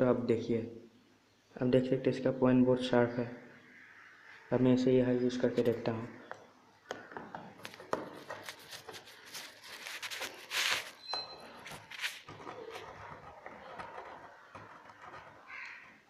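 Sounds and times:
scraping on cracked glass: 7.7 - 16.0.

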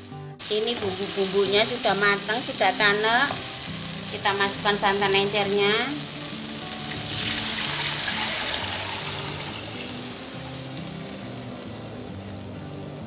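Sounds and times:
background music: 0.0 - 13.0
liquid pouring into sizzling wok: 6.1 - 11.8.

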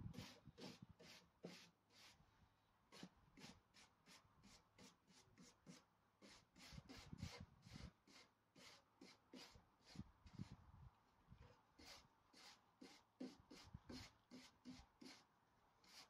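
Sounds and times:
hand brush scrubbing wood: 0.1 - 2.2, 2.9 - 10.5, 11.8 - 15.2.

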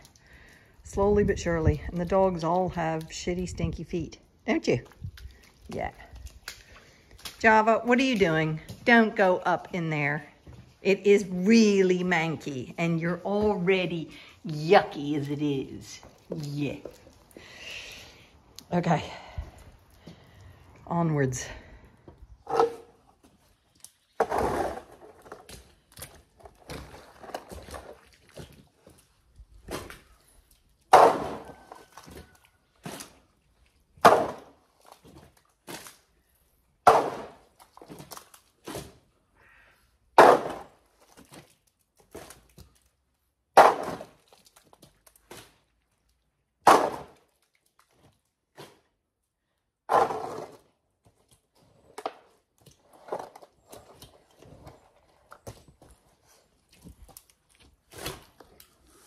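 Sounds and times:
shovel scraping concrete floor: 22.4 - 23.0, 24.2 - 25.7, 30.9 - 31.8, 36.9 - 39.0, 40.2 - 40.7, 46.7 - 47.2, 49.9 - 50.7
loads thudding into metal wheelbarrow: 49.9 - 50.6.

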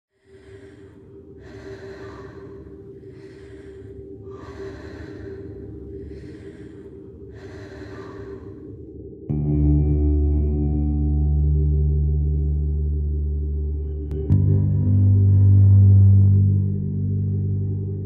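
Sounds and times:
slow deep breathing: 0.1 - 9.5
steady low hum: 0.1 - 18.0.

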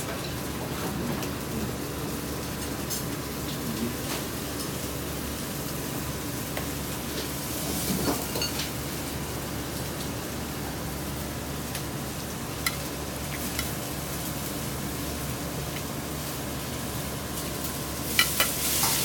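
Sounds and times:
kitchen frying hiss: 1.2 - 19.0.

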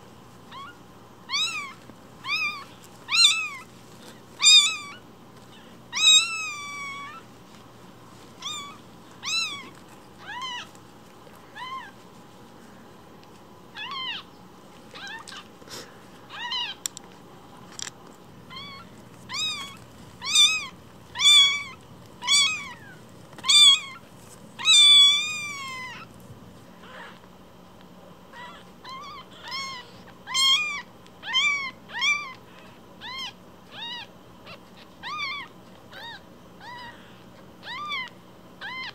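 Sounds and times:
kitten mewing: 0.5 - 3.7, 4.4 - 7.2, 8.4 - 10.7, 13.7 - 14.3, 18.5 - 24.0, 24.6 - 26.1, 28.3 - 32.4.

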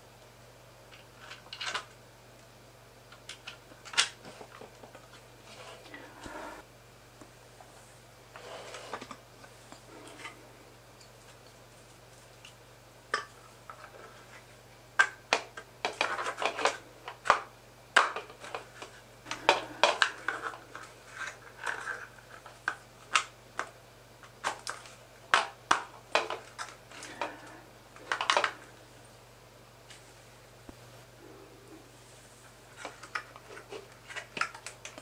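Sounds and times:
plastic parts clicking and scraping: 0.9 - 2.0, 15.0 - 28.7, 32.7 - 35.0.

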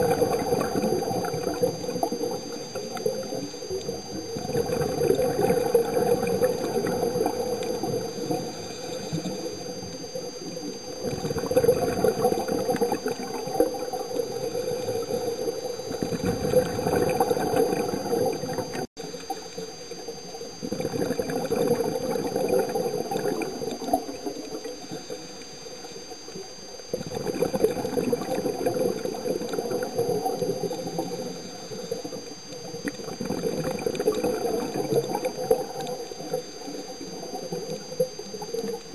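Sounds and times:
exhaled bubbles rushing: 0.0 - 25.2, 26.1 - 38.9
diver breathing through regulator: 8.3 - 9.7.

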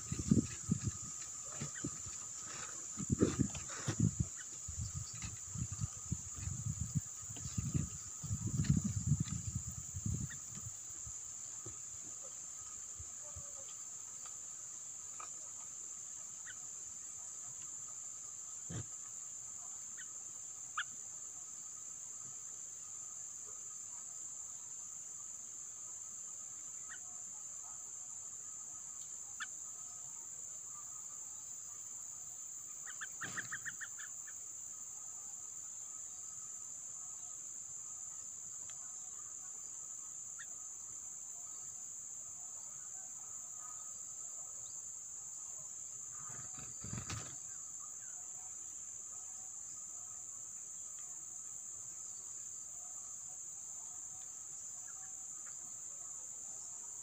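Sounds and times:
high-pitched insect drone: 0.0 - 14.0
faint insect tone: 0.0 - 57.0.

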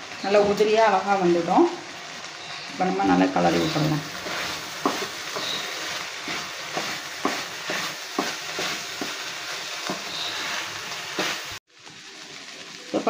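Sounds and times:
fish sizzling in a frying pan: 0.0 - 13.0
spatula scraping a pan: 3.5 - 11.6.

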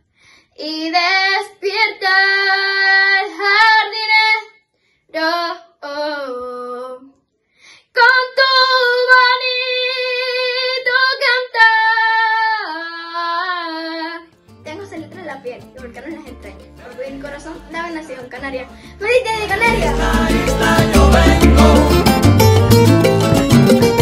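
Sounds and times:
girl breathing: 0.0 - 0.6, 7.4 - 7.9, 18.7 - 19.0
girl singing unaccompanied: 0.6 - 7.2, 7.8 - 20.3.

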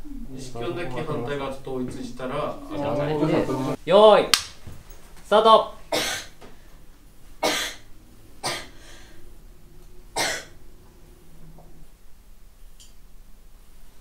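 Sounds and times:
person coughing: 5.9 - 6.4, 8.4 - 8.8, 10.2 - 10.6.

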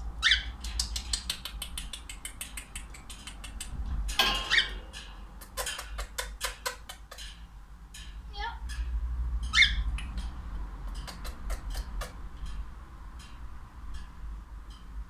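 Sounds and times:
cockatiel chirping: 0.2 - 3.7, 4.5 - 4.8, 9.5 - 10.2
beak clicking on seeds: 0.6 - 3.7.

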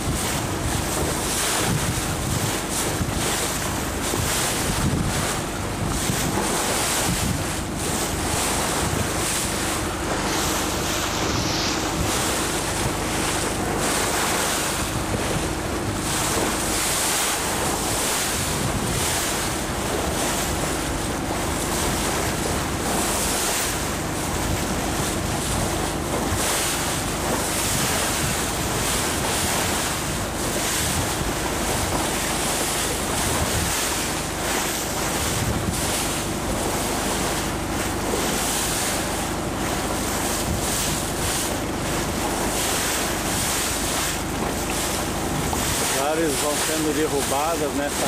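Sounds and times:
water rushing past boat: 0.0 - 48.0
wind buffeting microphone: 0.0 - 48.0
low hum: 7.9 - 16.8.

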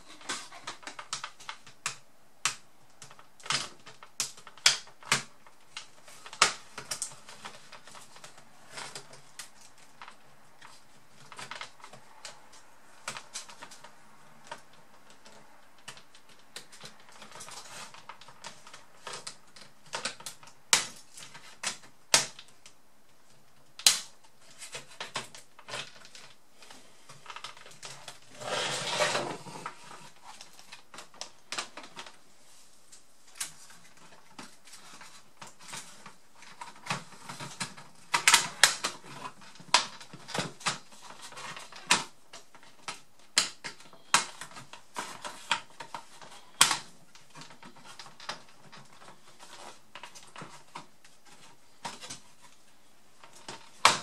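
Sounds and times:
rustling scrape: 27.8 - 30.6.

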